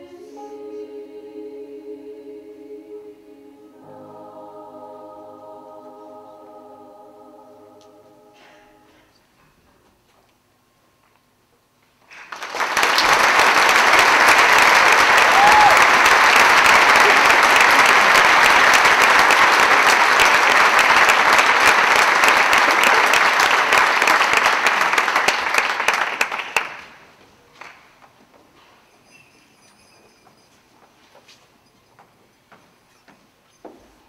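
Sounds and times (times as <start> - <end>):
audience applauding: 12.1 - 27.9.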